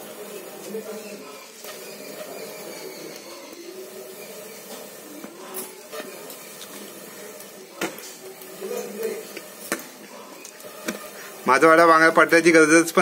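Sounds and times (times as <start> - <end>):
burning sticks crackling: 0.0 - 13.0.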